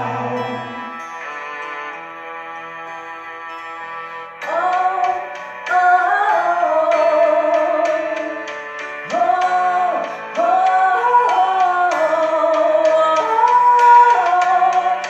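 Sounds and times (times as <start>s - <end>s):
person singing wordless vocal run: 0.0s - 1.1s, 4.5s - 15.0s
piano and guitar accompaniment: 0.0s - 15.0s.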